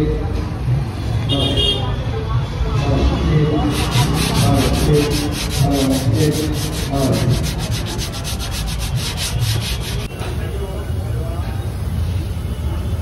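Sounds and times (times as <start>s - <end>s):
sandpaper sanding by hand: 3.7s - 10.1s.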